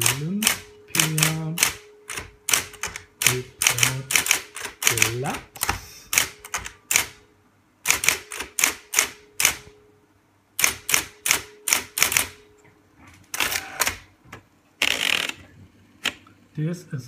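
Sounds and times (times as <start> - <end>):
typewriter key strikes: 0.0 - 7.1.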